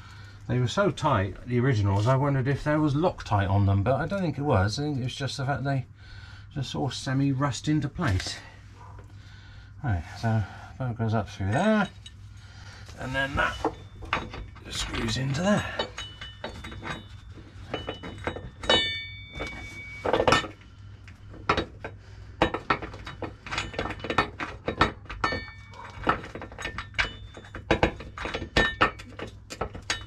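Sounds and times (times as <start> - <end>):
metal clinks and knocks: 11.5 - 30.0.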